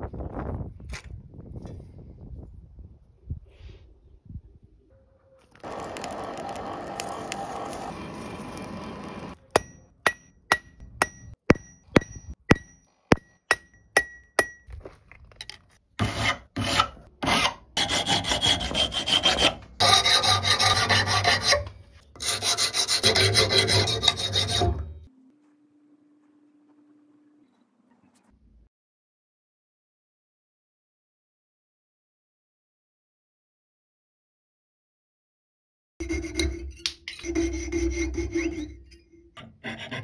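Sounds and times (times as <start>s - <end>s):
filing on steel: 16.0s - 25.0s, 36.0s - 40.0s.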